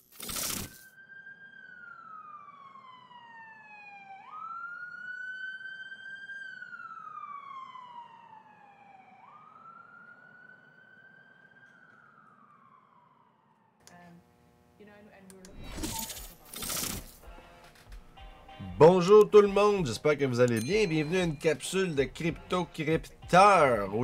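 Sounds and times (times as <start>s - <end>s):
siren-like wail: 0.4s - 13.9s.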